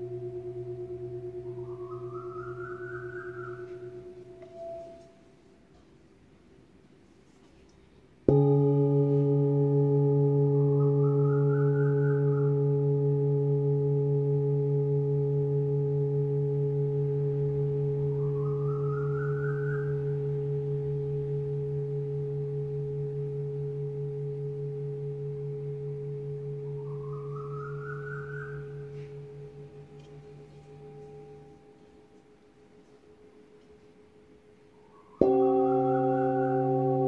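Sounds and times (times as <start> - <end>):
singing bowl ringing: 0.0 - 5.7, 8.2 - 37.0.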